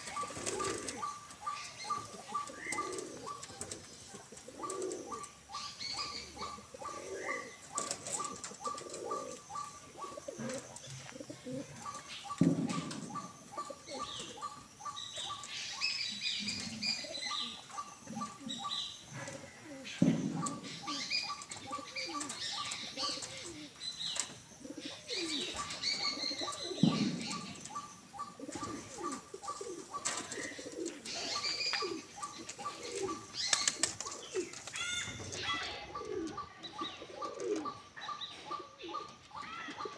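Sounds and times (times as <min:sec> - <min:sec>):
wings flapping: 0:00.0 - 0:01.0, 0:31.8 - 0:35.6
bird chirps: 0:00.0 - 0:39.9
pigeons cooing: 0:00.0 - 0:39.9.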